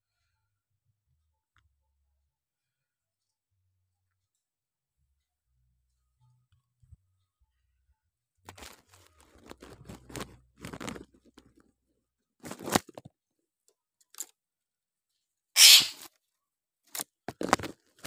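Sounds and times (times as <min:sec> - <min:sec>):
rustles and scrapes in bird cage: 0:08.5 - 0:11.5, 0:12.4 - 0:13.0, 0:15.6 - 0:16.1
harsh noisy burst: 0:15.6 - 0:16.0.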